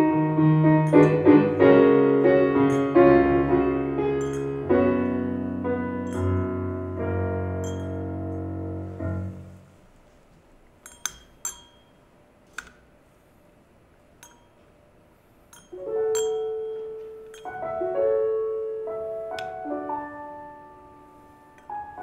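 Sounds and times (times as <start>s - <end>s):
slow piano music: 0.0s - 9.9s, 15.7s - 22.0s
light metallic clinks: 0.8s - 1.3s, 2.6s - 3.1s, 4.2s - 4.7s, 6.0s - 6.5s, 7.6s - 8.2s, 10.8s - 12.7s, 14.2s - 14.9s, 15.5s - 17.8s.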